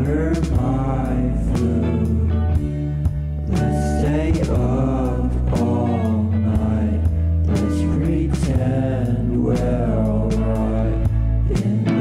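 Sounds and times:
song with singing over beat: 0:00.0 - 0:12.0.

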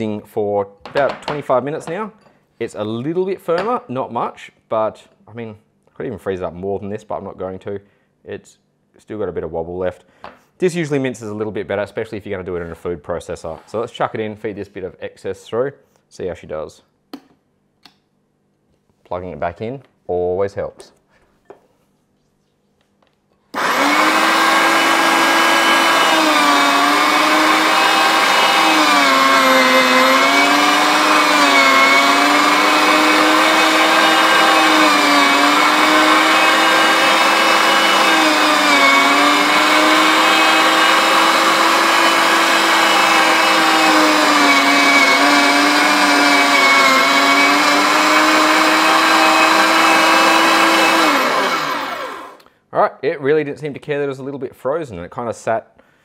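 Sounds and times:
electric meat mincer motor whine: 0:23.6 - 0:52.4.

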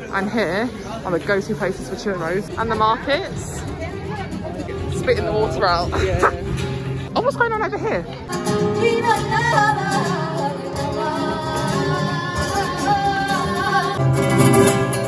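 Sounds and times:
acoustic guitar: 0:00.0 - 0:15.0
person singing flamenco: 0:08.2 - 0:15.0.

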